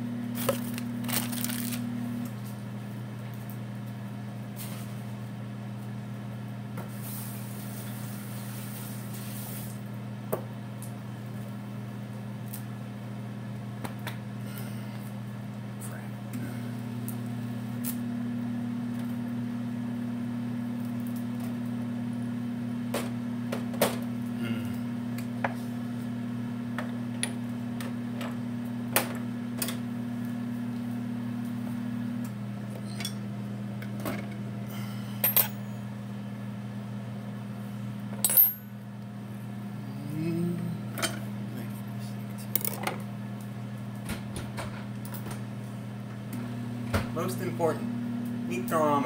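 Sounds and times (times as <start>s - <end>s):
microwave oven humming: 0.0s - 49.0s
kitchen items clattering: 0.4s - 1.8s.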